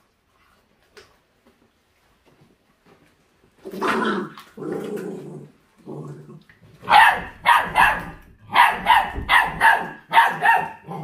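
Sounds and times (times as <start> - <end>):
puppy growling: 3.7 - 10.0, 10.6 - 11.0
puppy barking sharply: 6.8 - 11.0.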